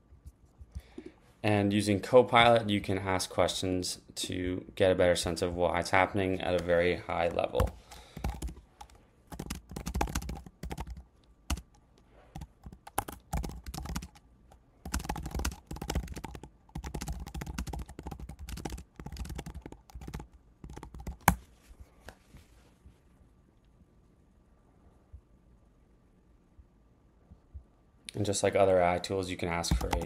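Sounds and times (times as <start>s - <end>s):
typing on computer keyboard: 7.6s - 11.8s, 12.4s - 14.2s, 14.8s - 21.4s, 29.7s - 30.0s.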